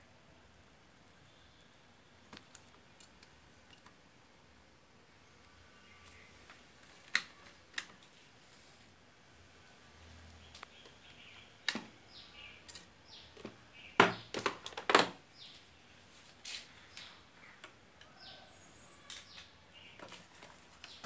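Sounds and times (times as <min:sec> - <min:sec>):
birds chirping: 0:10.2 - 0:21.0.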